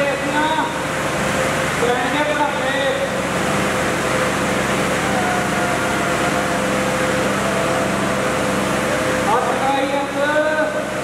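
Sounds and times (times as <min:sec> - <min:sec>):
tractor diesel engines under load: 0:00.0 - 0:11.0
crowd noise: 0:04.7 - 0:09.6.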